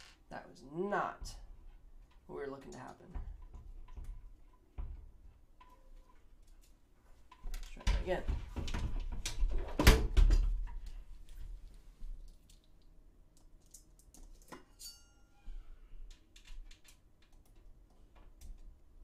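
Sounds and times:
sharp metallic clink: 14.7 - 15.4.

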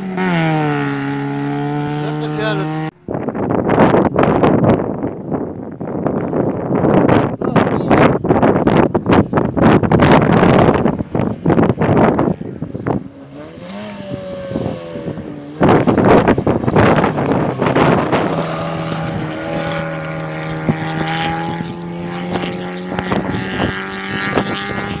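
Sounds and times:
rally car engine revving: 0.0 - 25.0
wind noise: 0.0 - 25.0
gravel spraying: 16.5 - 20.6.

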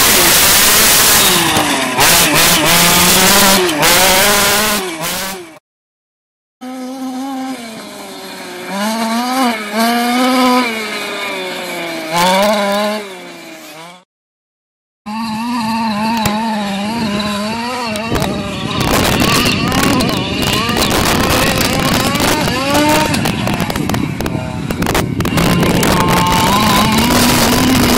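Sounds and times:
small two-stroke engine revving: 0.0 - 5.6, 6.6 - 14.1, 15.1 - 27.9
loud rough crackling noise: 17.9 - 27.9.

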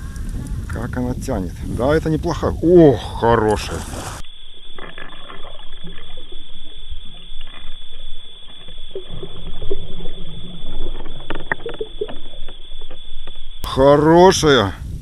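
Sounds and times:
steady high whine: 2.0 - 15.0
muffled water sloshing: 2.2 - 13.7.

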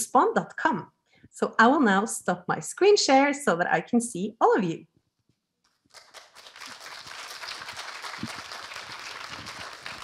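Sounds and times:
audience applauding: 5.9 - 10.0.

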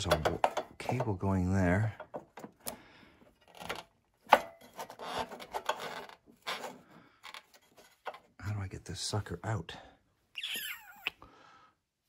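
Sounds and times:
hands scraping plastic bodywork: 3.4 - 8.4.

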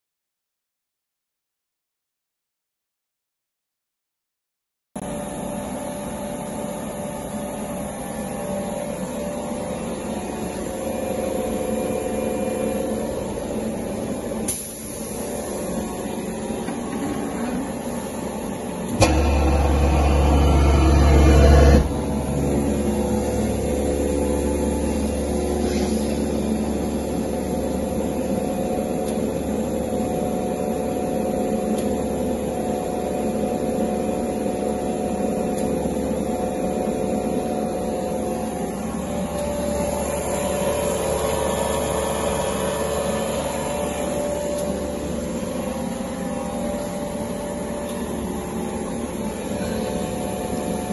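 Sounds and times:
vacuum pump running: 5.1 - 50.9.

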